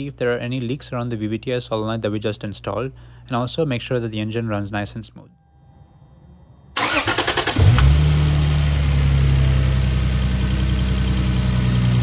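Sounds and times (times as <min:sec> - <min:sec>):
car engine starting and idling: 0:06.7 - 0:12.0
starter motor cranking: 0:06.8 - 0:08.0.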